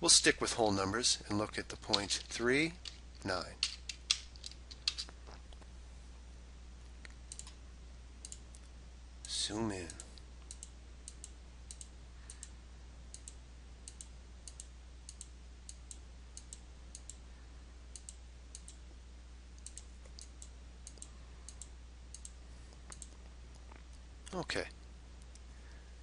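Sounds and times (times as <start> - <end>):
faint low hum: 0.0 - 26.0
computer mouse clicking: 13.1 - 17.2, 19.6 - 23.6.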